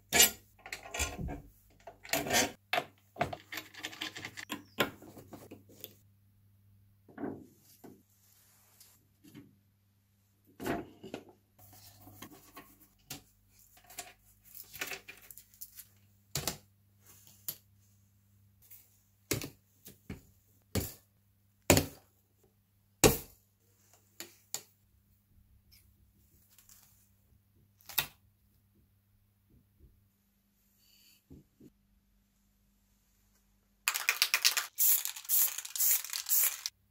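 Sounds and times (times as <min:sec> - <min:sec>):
metal parts clicking and knocking: 0:01.8 - 0:04.6.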